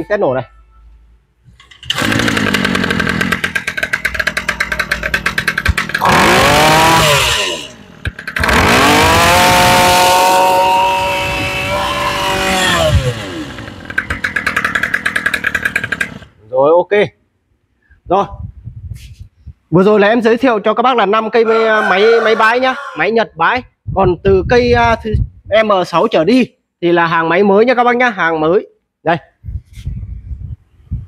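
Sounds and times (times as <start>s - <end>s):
brush cutter engine revving: 1.8s - 16.4s.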